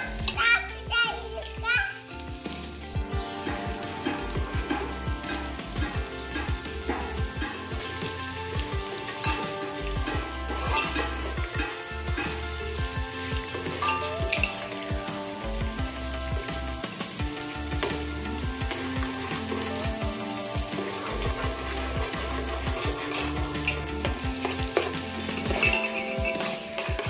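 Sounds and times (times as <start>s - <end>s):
background music: 0.0s - 27.0s
spoon stirring in a metal pot: 3.1s - 15.5s, 16.9s - 27.0s
spoon clinking against pot: 8.9s - 12.8s, 13.6s - 14.6s, 21.7s - 27.0s.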